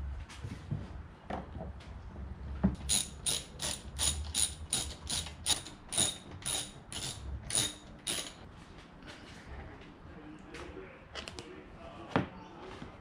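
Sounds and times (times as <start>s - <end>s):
hand ratchet ratcheting: 2.8s - 8.4s.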